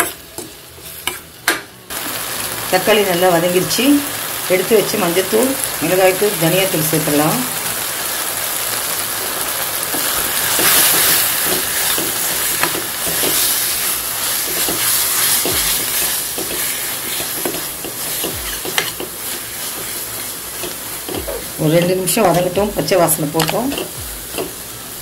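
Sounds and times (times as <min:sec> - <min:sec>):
food sizzling in oil: 0:00.0 - 0:25.0
spatula scraping and tapping pan: 0:10.0 - 0:13.6, 0:14.3 - 0:19.9.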